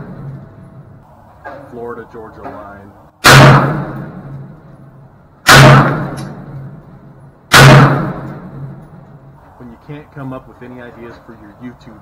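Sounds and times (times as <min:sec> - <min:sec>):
pistol shots: 0:03.2 - 0:04.4, 0:05.4 - 0:06.7, 0:07.5 - 0:08.8.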